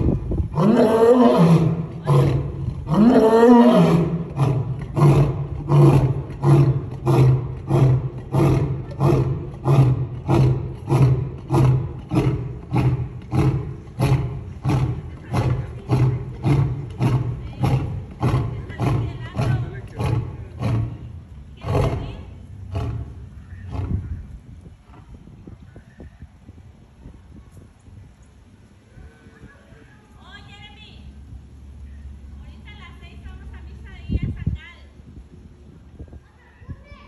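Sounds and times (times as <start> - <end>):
lion roaring: 0.4 - 24.0.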